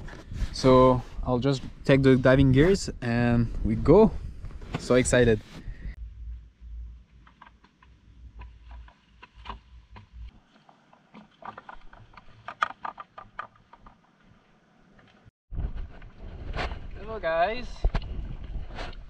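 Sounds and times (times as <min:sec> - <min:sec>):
low rumble: 0:05.6 - 0:07.2.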